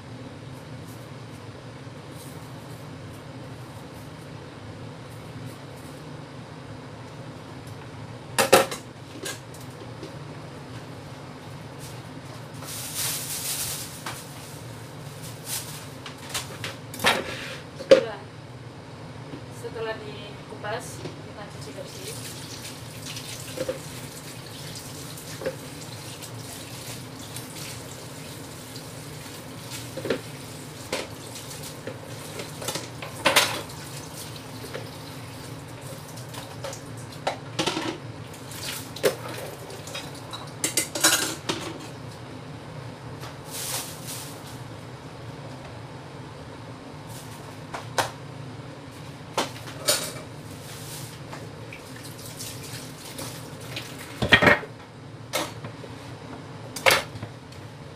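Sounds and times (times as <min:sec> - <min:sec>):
tap water running: 0:21.8 - 0:37.3, 0:38.3 - 0:40.4, 0:51.6 - 0:54.3.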